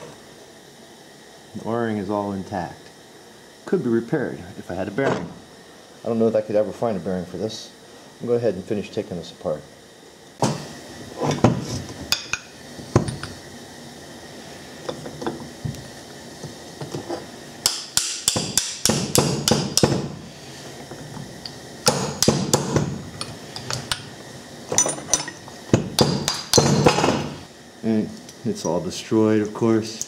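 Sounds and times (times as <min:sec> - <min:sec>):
hammer striking metal: 0:17.6 - 0:20.1, 0:21.8 - 0:22.9, 0:24.8 - 0:27.3.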